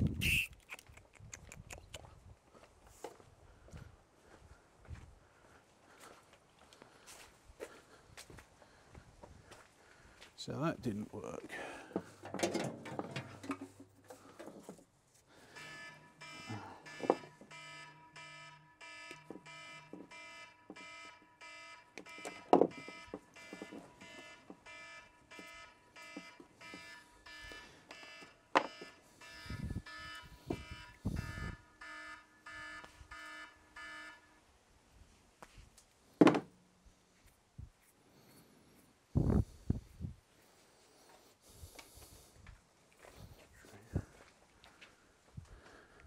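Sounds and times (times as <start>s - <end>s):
electronic warning beeps: 15.4s - 34.4s.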